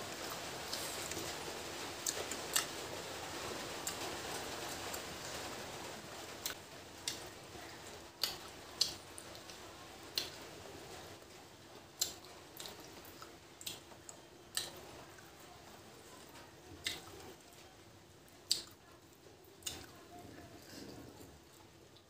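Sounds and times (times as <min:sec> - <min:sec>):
wet mouth clicks and chewing: 0:08.2 - 0:10.4, 0:12.0 - 0:14.8, 0:18.5 - 0:18.8, 0:19.6 - 0:19.9.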